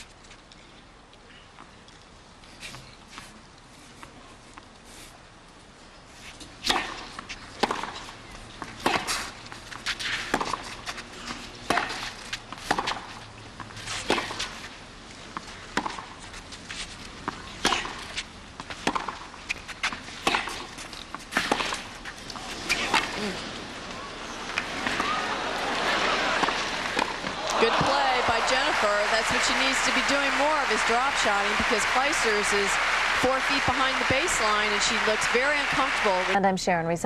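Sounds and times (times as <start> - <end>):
tennis ball struck by rackets: 6.6 - 13.2, 14.0 - 14.6, 15.4 - 16.2, 17.3 - 18.2, 18.8 - 21.8, 26.0 - 36.0
tennis ball bouncing: 6.6 - 14.7, 15.3 - 16.2, 17.2 - 23.2, 24.5 - 36.3.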